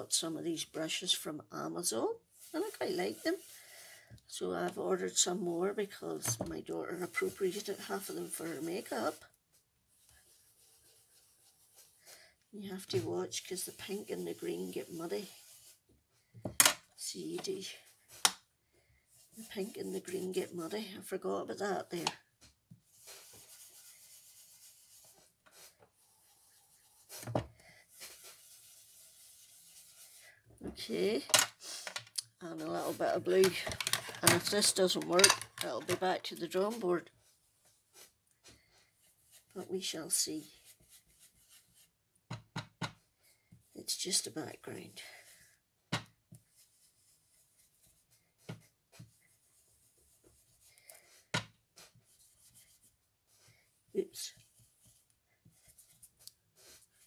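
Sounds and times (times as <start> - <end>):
brush scraping on card: 2.3 - 3.9, 12.9 - 15.8, 22.9 - 27.2, 27.9 - 30.3, 40.4 - 41.9.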